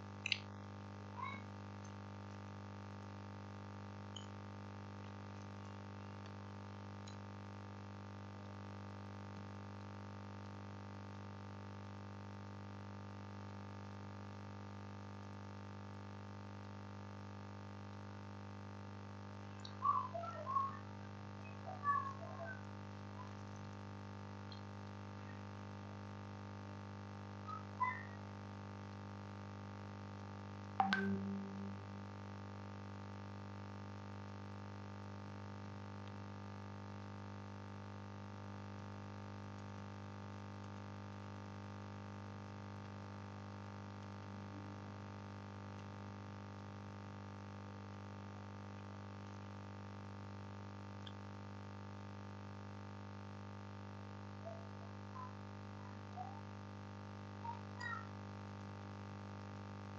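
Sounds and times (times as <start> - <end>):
electrical mains hum: 0.0 - 59.9
faint high-pitched sounds: 0.3 - 1.6, 19.6 - 25.6, 27.4 - 28.4, 30.8 - 32.0, 54.2 - 56.6, 57.2 - 58.2
electrical hum: 17.9 - 32.1, 53.5 - 59.9
short high blip: 30.8 - 32.0
brief low tone: 30.8 - 32.1.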